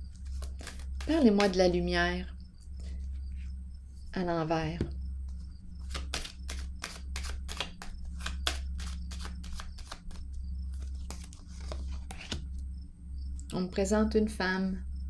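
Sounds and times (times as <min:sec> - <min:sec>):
low steady hum: 0:00.0 - 0:15.0
cards being shuffled: 0:00.1 - 0:01.6, 0:05.3 - 0:12.4.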